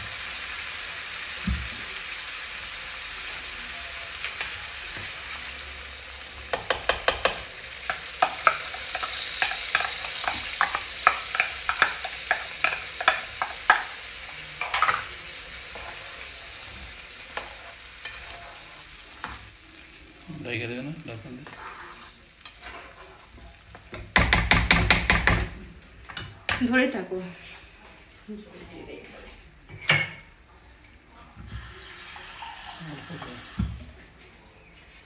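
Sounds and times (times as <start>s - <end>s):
fish sizzling in a frying pan: 0.0s - 25.7s, 28.4s - 34.0s
spatula scraping a pan: 6.5s - 19.6s, 21.3s - 23.4s.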